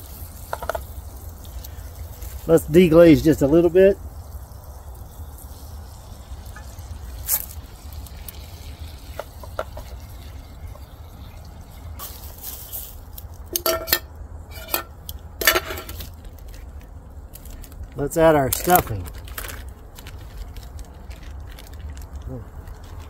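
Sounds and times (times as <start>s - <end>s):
liquid pouring into hot pan: 0.3s - 12.7s
utensil clinking against pan: 13.5s - 15.9s.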